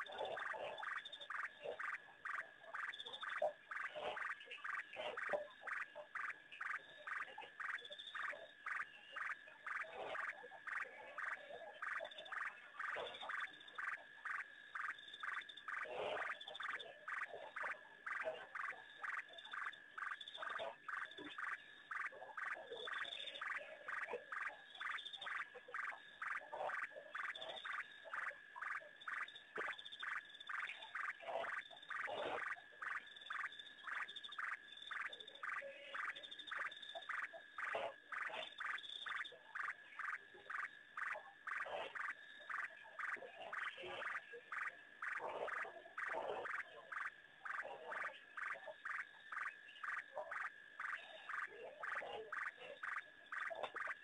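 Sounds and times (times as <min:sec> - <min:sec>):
frogs calling: 0:00.0 - 0:54.0
lower sliding frog calls: 0:00.0 - 0:54.0.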